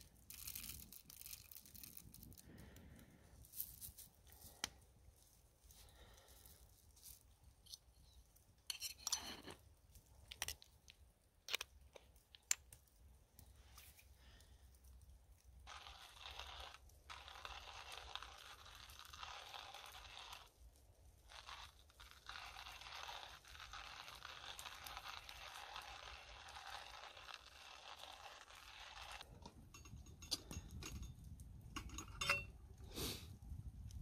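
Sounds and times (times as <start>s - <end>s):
coffee grinder crunching beans: 0.0s - 4.6s, 14.9s - 29.5s.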